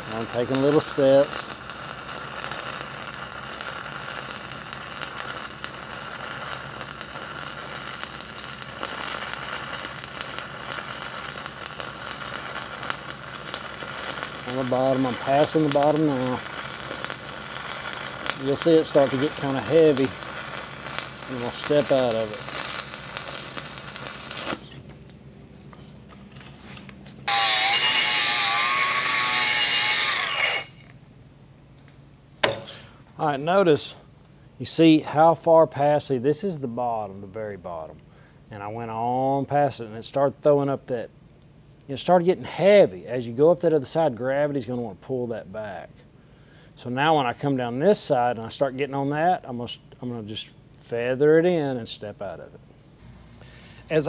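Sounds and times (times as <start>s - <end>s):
welding arc crackling hiss: 0.0s - 25.1s, 25.8s - 30.9s, 53.0s - 54.0s
power tool whining: 27.2s - 30.9s.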